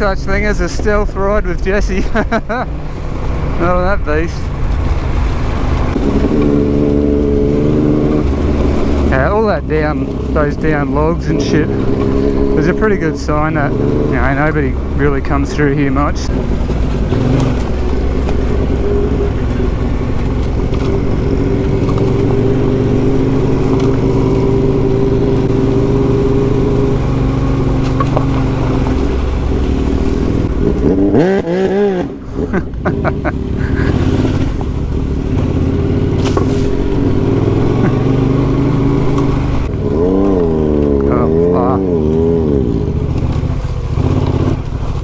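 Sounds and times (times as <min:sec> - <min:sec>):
motorcycle engine revving: 0:03.2 - 0:45.0
motorcycle engine running: 0:03.6 - 0:45.0.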